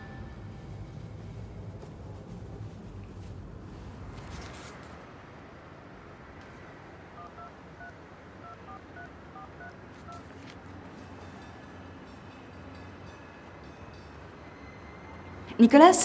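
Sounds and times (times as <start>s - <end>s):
brief rustle: 4.1s - 5.0s
phone keypad beeps: 7.2s - 10.2s.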